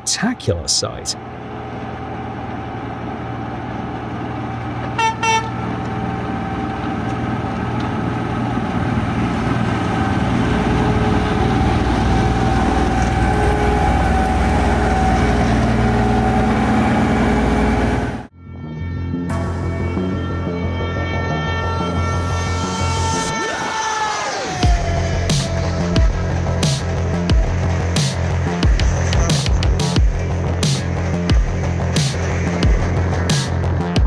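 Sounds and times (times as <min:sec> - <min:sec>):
snow-blower engine and blowers: 0:01.2 - 0:18.3
horn toots: 0:05.0 - 0:05.7.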